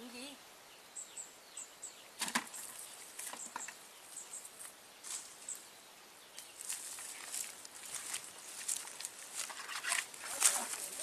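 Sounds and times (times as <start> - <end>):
net rustling on dry leaves: 6.4 - 11.0.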